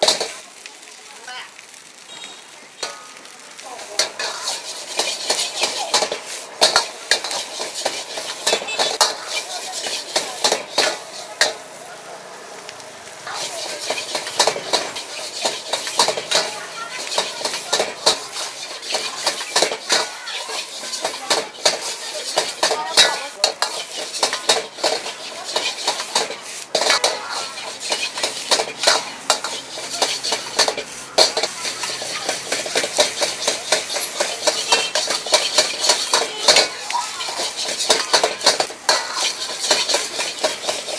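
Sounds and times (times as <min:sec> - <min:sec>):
metal utensils scraping a wok: 0:00.0 - 0:00.4, 0:02.1 - 0:11.8, 0:13.2 - 0:40.9
food sizzling: 0:00.0 - 0:40.9.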